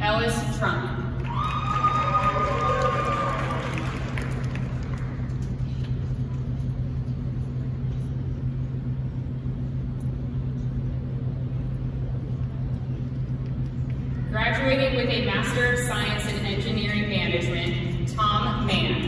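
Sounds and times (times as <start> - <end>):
low hum of arena hall: 0.0 - 19.0.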